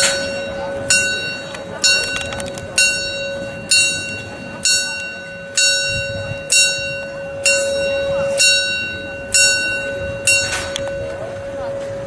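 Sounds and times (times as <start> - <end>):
bell ringing: 0.0 - 12.0.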